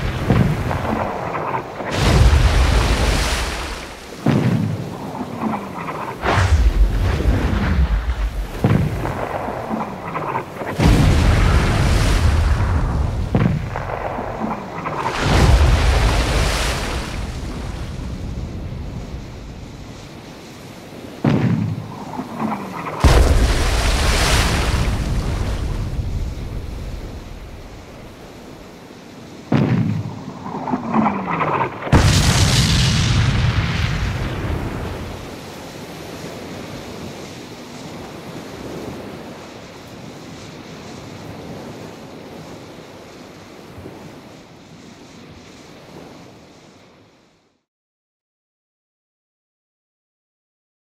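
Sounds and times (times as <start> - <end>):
rumbling explosion: 0.0 - 1.2, 1.9 - 5.6, 6.2 - 19.5, 21.2 - 27.3, 30.7 - 35.2
ocean waves: 0.0 - 47.5
sea and wind: 0.0 - 47.7
cannon booms: 23.0 - 23.9.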